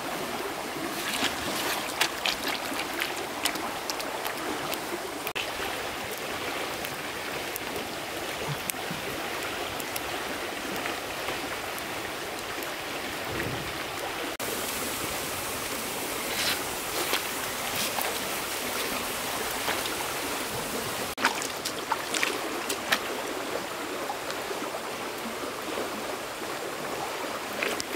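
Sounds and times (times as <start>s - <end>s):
running water rushing: 0.0s - 27.9s.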